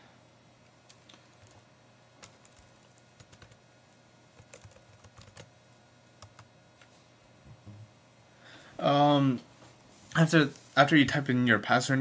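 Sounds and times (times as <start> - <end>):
keyboard typing clicks: 4.4 - 5.5, 6.2 - 6.5.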